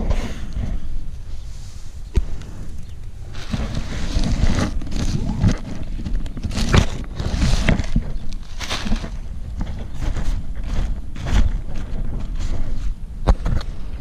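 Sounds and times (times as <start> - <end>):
wind buffeting microphone: 0.0 - 14.0
paraglider cloth crackling: 1.4 - 13.0.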